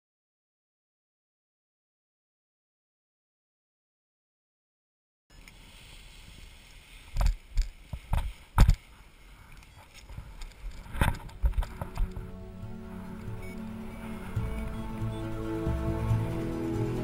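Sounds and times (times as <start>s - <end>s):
wind rumble on microphone: 10.1s - 15.4s
soft music: 11.1s - 17.0s.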